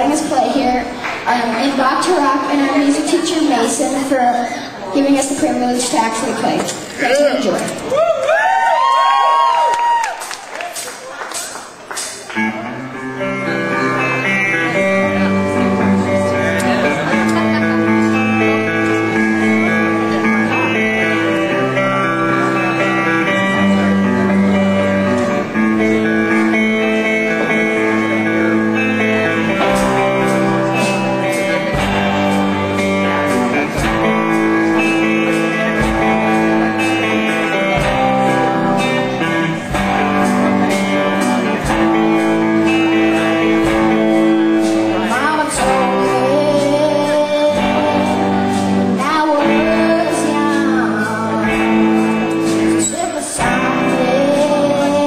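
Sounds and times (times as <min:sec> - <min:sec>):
electric guitar: 0:00.0 - 0:55.0
person singing: 0:25.5 - 0:55.0.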